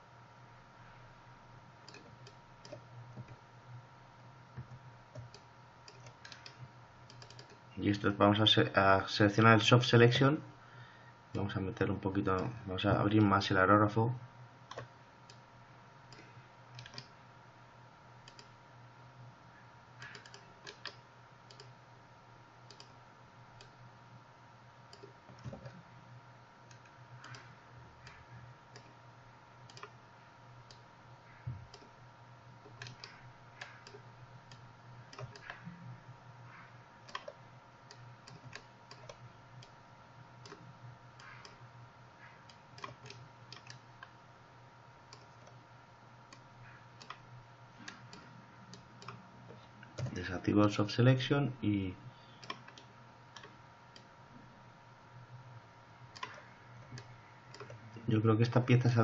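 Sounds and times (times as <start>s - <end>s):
steady low hum: 0.0s - 59.0s
mouse and keyboard clicks: 5.1s - 7.6s, 14.7s - 15.4s, 16.1s - 17.1s, 20.0s - 21.7s, 26.7s - 28.9s, 29.7s - 30.0s, 32.6s - 35.7s, 36.5s - 39.8s, 41.2s - 41.6s, 42.8s - 43.8s, 56.1s - 57.8s.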